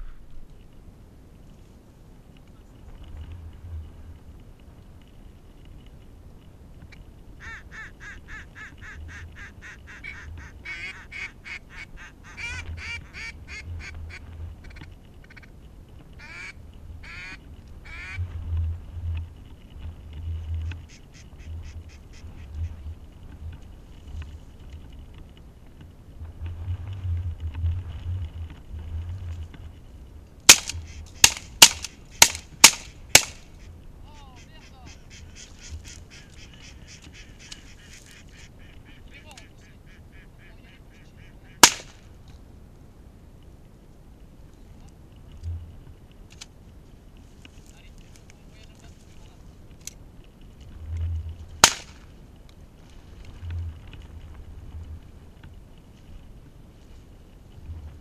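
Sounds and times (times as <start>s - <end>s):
ducks quacking: 7.4s - 15.5s, 16.2s - 18.3s, 20.3s - 23.0s, 30.7s - 31.4s, 33.1s - 41.8s
sharp loud cracks: 30.5s - 33.6s, 41.6s - 42.1s, 51.6s - 52.1s.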